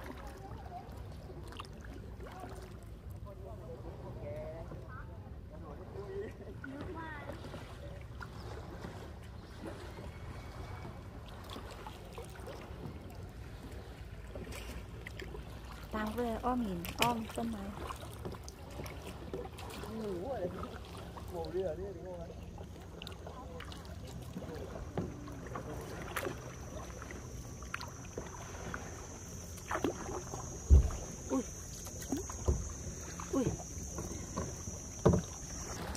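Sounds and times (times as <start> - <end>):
paddle strokes in water: 0.0 - 35.9
water lapping at hull: 0.0 - 35.9
faint high whine: 21.8 - 35.9
water drips: 22.8 - 35.9.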